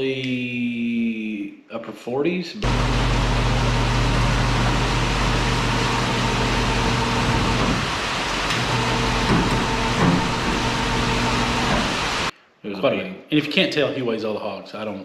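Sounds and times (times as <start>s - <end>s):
engine hum: 2.6s - 12.3s.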